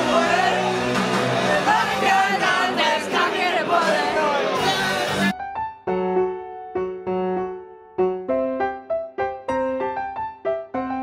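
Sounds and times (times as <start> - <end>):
crowd noise: 0.0 - 5.3
loud party music: 0.0 - 5.3
slow piano chords: 5.3 - 11.0.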